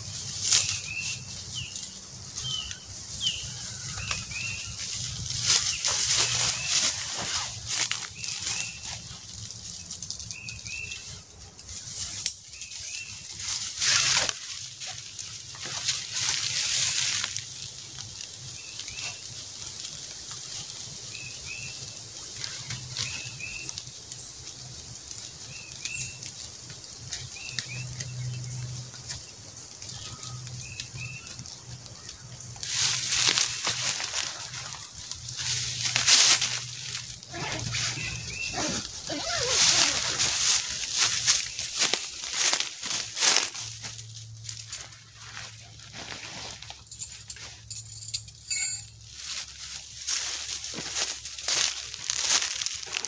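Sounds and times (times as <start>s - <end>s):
bird chirping: 0.6s - 4.8s, 37.3s - 40.2s
tent fabric rustling and flapping: 4.1s - 9.1s, 32.7s - 47.7s, 49.2s - 53.0s.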